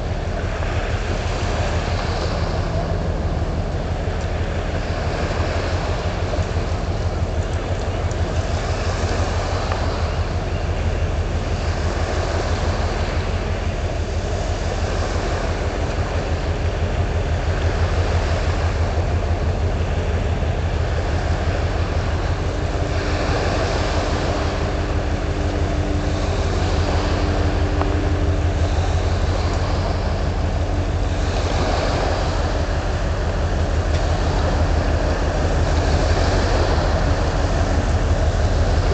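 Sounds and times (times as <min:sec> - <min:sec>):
ship engine rumble: 0:00.0 - 0:38.9
wind and water noise: 0:00.0 - 0:38.9
two-note hum: 0:20.0 - 0:38.9.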